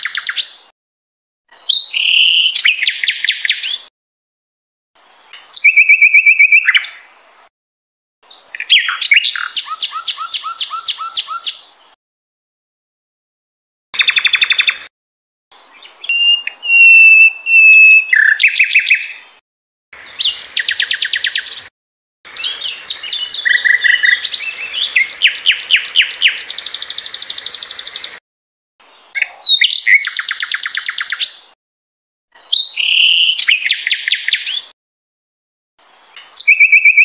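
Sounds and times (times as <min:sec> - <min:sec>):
songbird singing trills and whistles: 0:00.0 - 0:00.6, 0:01.5 - 0:03.9, 0:05.3 - 0:07.1, 0:08.3 - 0:11.7, 0:14.0 - 0:14.9, 0:15.6 - 0:19.3, 0:20.0 - 0:21.7, 0:22.3 - 0:28.2, 0:29.1 - 0:31.5, 0:32.4 - 0:34.8, 0:36.2 - 0:37.0.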